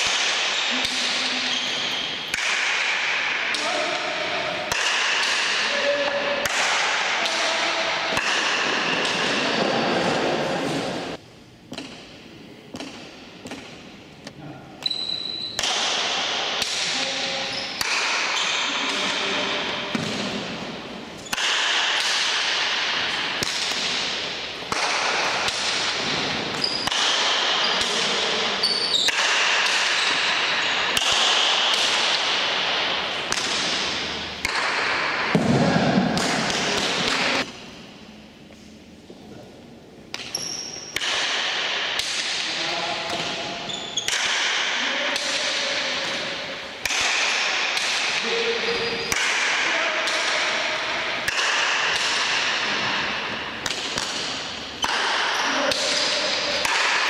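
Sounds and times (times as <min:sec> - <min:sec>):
ball struck by wooden paddles: 0:00.0 - 0:14.0, 0:15.5 - 0:37.7, 0:40.1 - 0:57.0
ball hitting wall: 0:19.7 - 0:20.6, 0:29.0 - 0:37.5.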